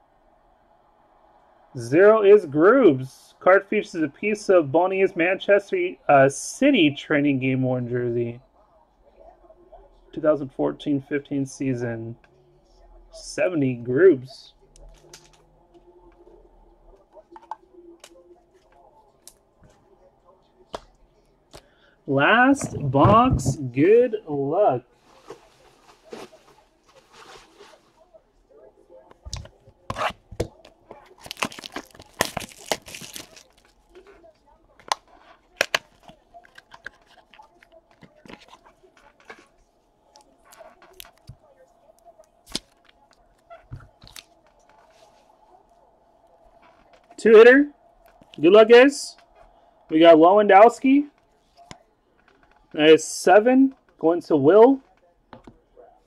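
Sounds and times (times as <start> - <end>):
trading cards rustling and clicking: 29.3 - 34.1, 34.8 - 39.5, 42.4 - 45.3.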